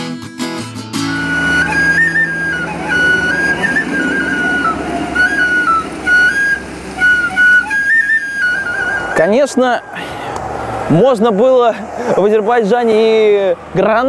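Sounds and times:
wooden flute melody: 1.0s - 10.0s.

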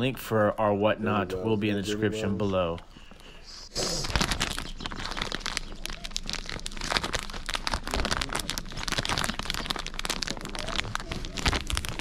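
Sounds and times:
plastic card sleeves crinkling: 3.7s - 12.0s.

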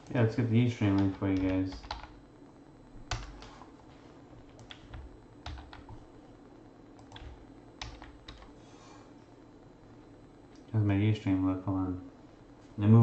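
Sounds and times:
computer keyboard typing: 0.8s - 2.2s, 3.1s - 3.5s, 4.4s - 6.1s, 7.0s - 8.6s.

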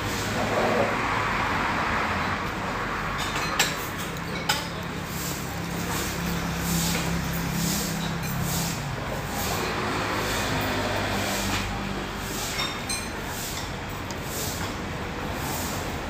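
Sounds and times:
road traffic: 0.0s - 16.0s
noodles being slurped: 3.8s - 16.0s.

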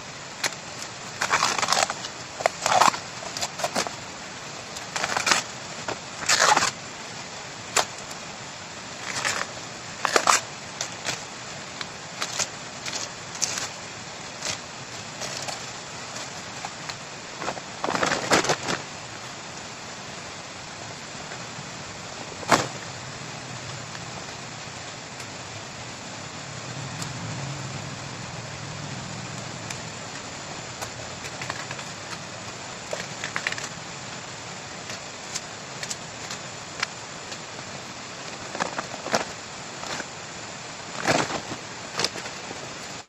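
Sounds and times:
background hiss: 0.0s - 43.0s
bamboo leaves crackling and rustling: 0.0s - 43.0s
bamboo snapping: 0.4s - 3.9s.

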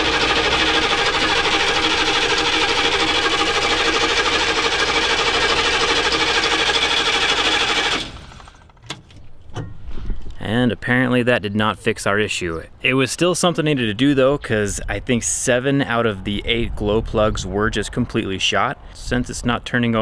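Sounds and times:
diesel engine cranking: 0.0s - 9.8s.

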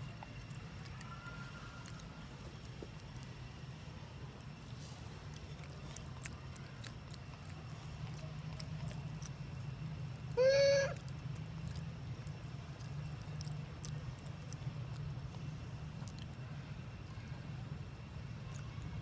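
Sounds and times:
steady low hum: 0.0s - 19.0s
macaque call: 10.4s - 11.1s.

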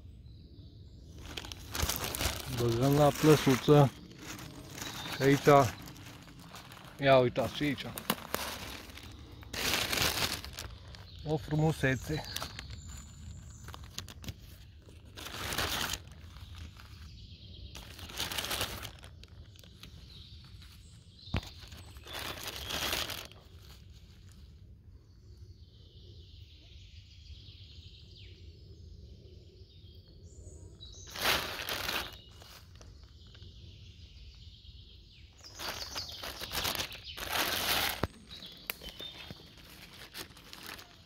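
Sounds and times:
rustling in dry leaf litter: 1.1s - 24.5s, 30.8s - 33.6s, 35.3s - 41.0s.

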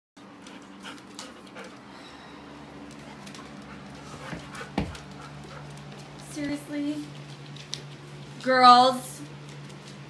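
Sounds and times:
dogs milling about: 0.2s - 1.9s, 2.6s - 8.2s
steady low hum: 0.2s - 10.0s.

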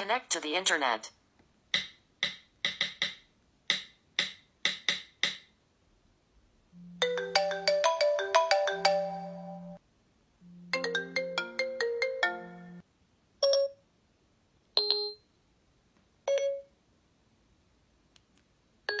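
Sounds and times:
marimba ringtone: 6.8s - 9.8s, 10.6s - 12.8s
phone ringtone melody: 6.8s - 9.8s, 10.4s - 12.8s, 13.4s - 13.8s, 14.8s - 15.2s, 16.3s - 16.7s.

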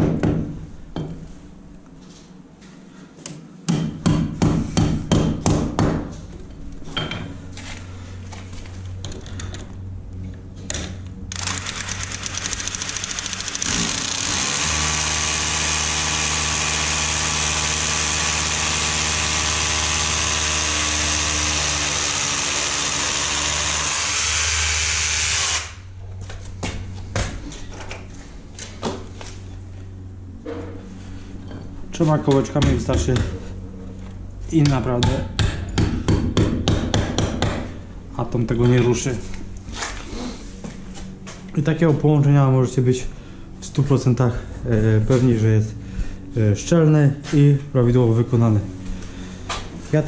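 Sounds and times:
hammer drill boring into concrete: 11.3s - 25.8s.

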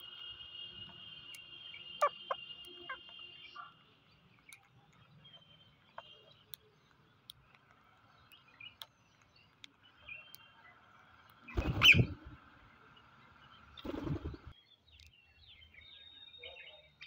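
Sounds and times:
beaks picking at rice: 0.0s - 12.1s
parakeets squawking: 11.5s - 12.1s.

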